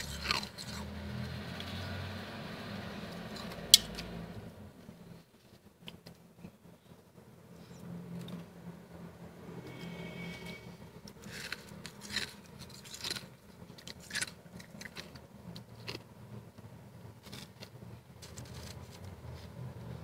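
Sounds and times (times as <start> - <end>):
frost crunching and scraping: 0.0 - 1.6, 9.8 - 16.1, 17.1 - 20.0
low steady hum: 0.0 - 20.0.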